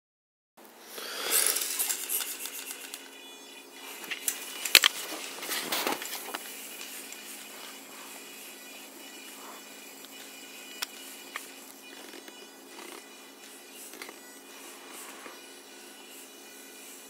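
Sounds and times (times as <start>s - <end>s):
thin motor whine: 0.8s - 17.0s.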